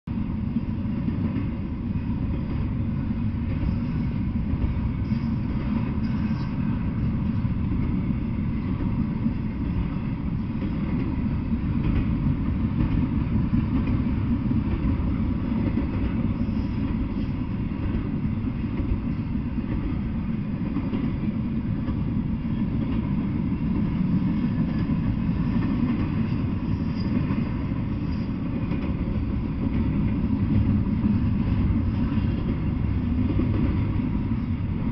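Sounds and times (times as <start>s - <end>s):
train wheels rumbling on rails: 0.0s - 34.9s.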